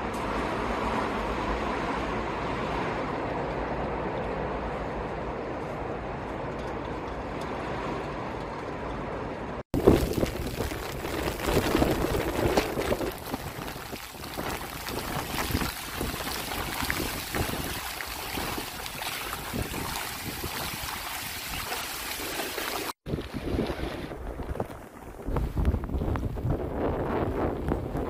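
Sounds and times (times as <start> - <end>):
gusting hurricane wind: 0.0 - 21.7, 22.8 - 28.0
wind buffeting microphone: 9.7 - 21.7, 23.1 - 28.0
rushing floodwater: 9.8 - 25.3.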